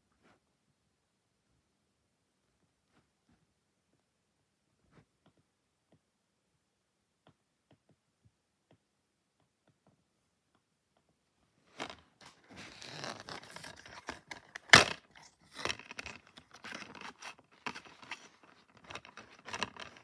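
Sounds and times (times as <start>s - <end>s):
plastic case scraping and rustling: 11.7s - 20.0s
plastic case snapping: 13.1s - 20.0s.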